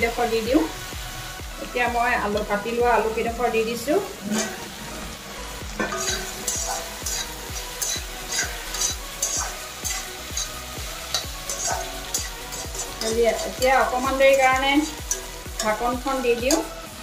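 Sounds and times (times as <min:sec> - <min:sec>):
food sizzling in oil: 0:00.0 - 0:17.0
wooden spatula scraping a wok: 0:04.0 - 0:16.8.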